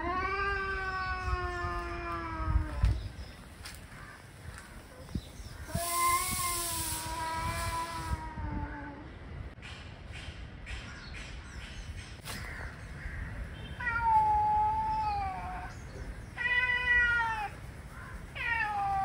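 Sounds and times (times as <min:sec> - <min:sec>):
cats yowling: 0:00.0 - 0:02.9, 0:13.8 - 0:15.7, 0:16.3 - 0:17.6, 0:18.3 - 0:19.0.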